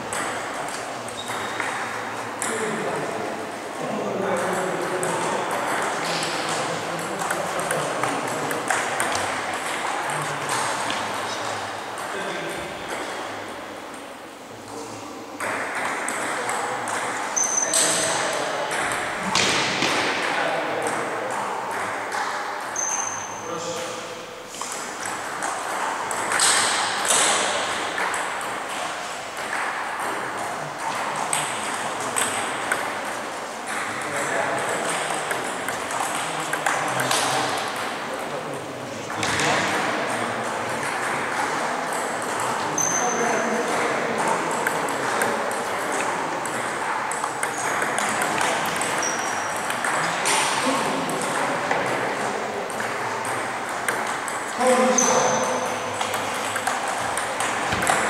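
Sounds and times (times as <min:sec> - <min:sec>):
table tennis balls clicking: 0:00.0 - 0:03.1, 0:04.3 - 0:14.1, 0:15.4 - 0:23.3, 0:24.5 - 0:38.3, 0:39.1 - 0:58.0
table tennis ball clicking: 0:40.8 - 0:51.9, 0:52.7 - 0:58.0.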